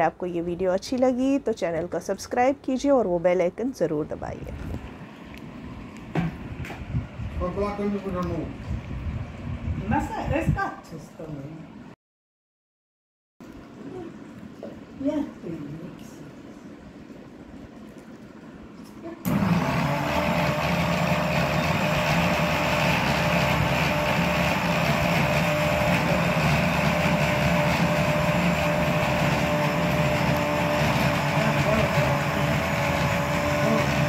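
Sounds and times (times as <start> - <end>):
mixer grinder motor running: 19.2 - 34.0.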